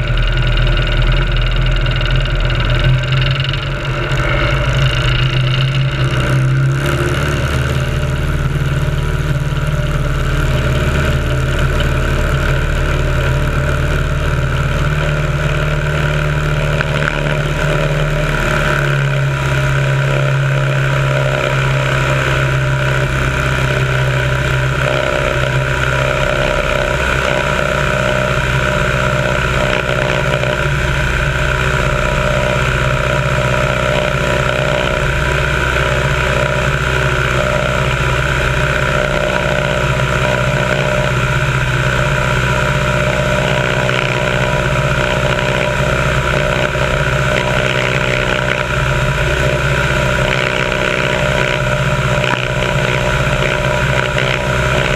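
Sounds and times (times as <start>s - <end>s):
plane engine and propeller: 0.0s - 54.9s.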